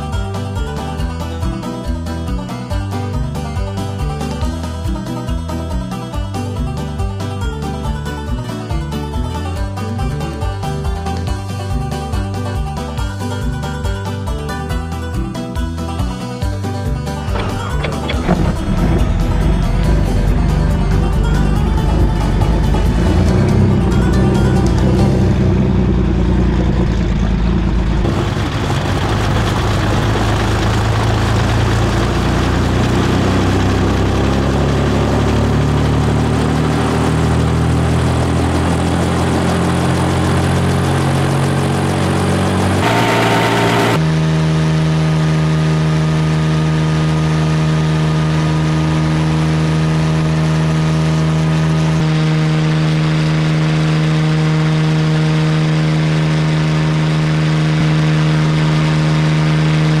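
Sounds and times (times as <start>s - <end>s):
helicopter engine and rotor: 36.8s - 44.0s.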